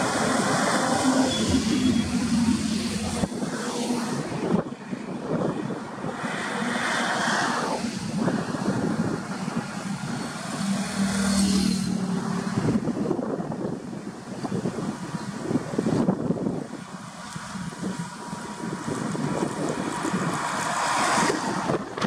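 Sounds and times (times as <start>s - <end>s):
bus engine drone: 0.0s - 22.0s
highway traffic passing: 0.0s - 22.0s
wind on microphone: 0.0s - 22.0s.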